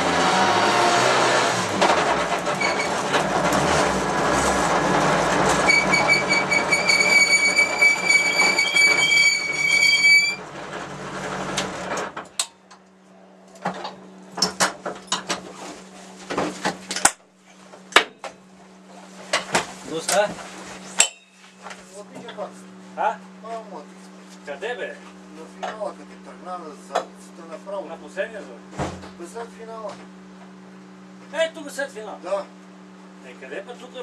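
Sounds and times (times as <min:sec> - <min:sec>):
race car engine running: 0:00.0 - 0:09.6
high-pitched squeal: 0:02.4 - 0:03.0, 0:05.5 - 0:10.4.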